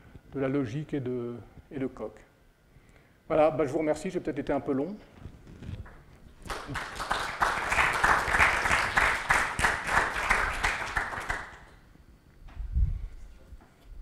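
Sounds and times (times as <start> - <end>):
audience applauding: 6.4 - 11.8.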